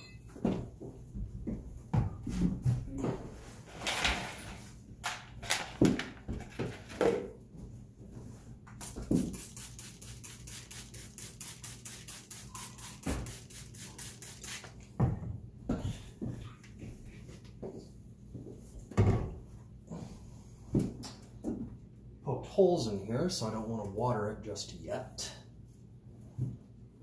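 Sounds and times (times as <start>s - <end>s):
spray bottle hissing sprays: 8.8s - 14.9s.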